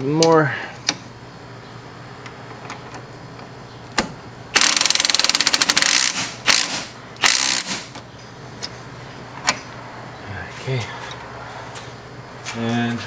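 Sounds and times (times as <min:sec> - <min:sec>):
impact wrench hammering: 0:04.5 - 0:08.0.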